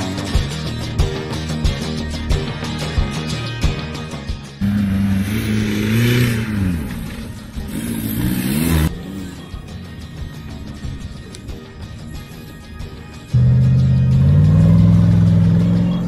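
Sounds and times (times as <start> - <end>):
background music: 0.0 - 16.0
car engine revving: 4.6 - 9.5, 13.3 - 16.0.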